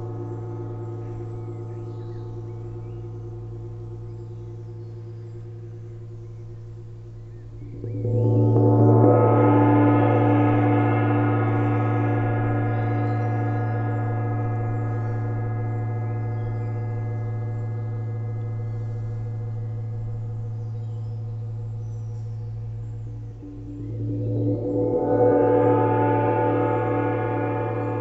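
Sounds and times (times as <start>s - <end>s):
gong ringing: 7.8s - 17.6s, 23.4s - 28.0s.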